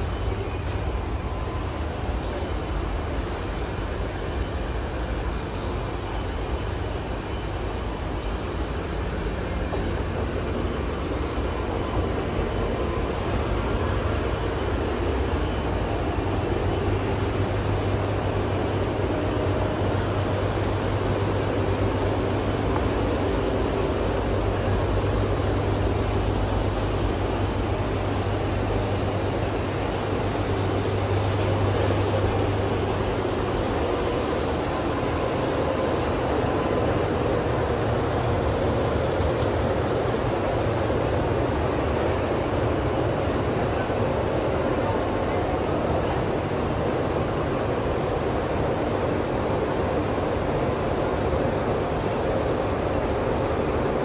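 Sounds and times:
air conditioner units humming: 0.0s - 54.0s.

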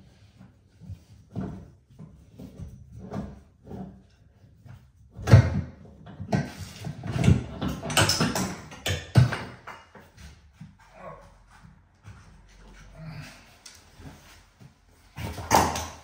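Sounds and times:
tools knocking and clattering: 5.2s - 10.8s.

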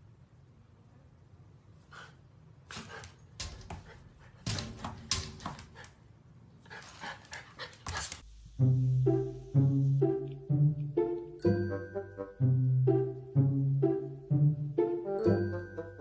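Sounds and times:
puppy panting: 1.9s - 8.2s
music with chiming notes: 11.4s - 13.2s, 15.1s - 16.0s.

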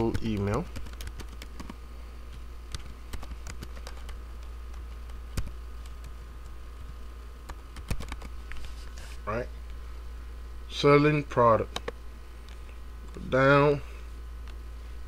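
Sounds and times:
keyboard typing: 0.0s - 6.5s, 7.4s - 8.4s
low steady hum: 0.0s - 15.0s.

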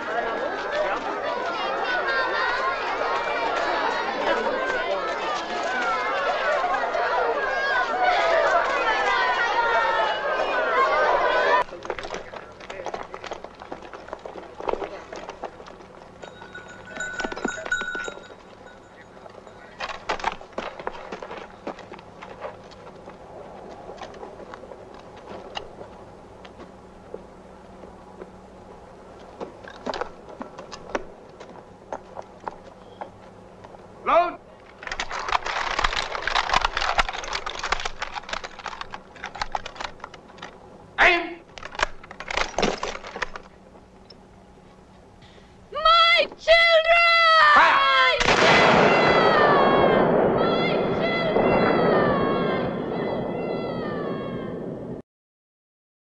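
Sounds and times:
boots crunching on stony ground: 11.7s - 33.9s
high thin ringing tone: 16.2s - 19.8s.

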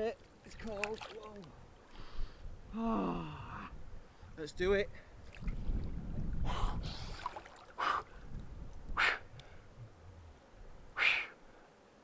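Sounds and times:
man gasping sharp breaths: 11.0s - 11.4s.

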